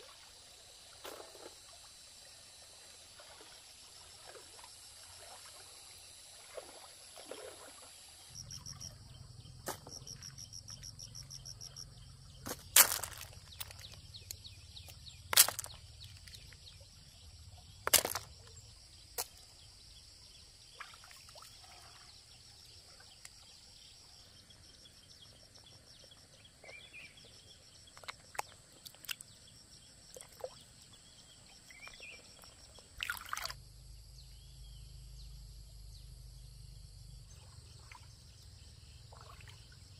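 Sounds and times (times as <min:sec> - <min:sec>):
water sloshing and splashing: 0:00.0 - 0:01.9, 0:02.9 - 0:09.0, 0:12.4 - 0:17.0, 0:17.8 - 0:19.5, 0:20.6 - 0:23.4, 0:31.8 - 0:33.6, 0:39.0 - 0:39.9.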